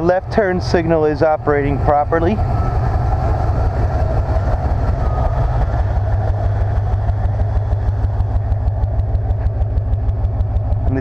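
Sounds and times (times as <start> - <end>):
pickup engine idling: 0.0 - 11.0.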